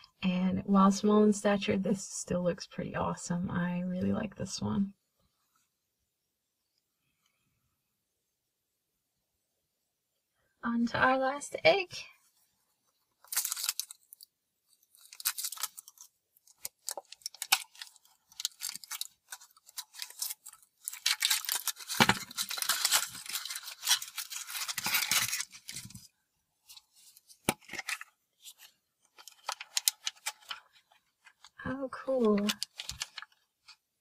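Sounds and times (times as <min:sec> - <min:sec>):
foil wrapper crinkling and tearing: 0:13.2 - 0:26.1, 0:26.7 - 0:33.8
plastic bag crinkling: 0:13.2 - 0:33.8.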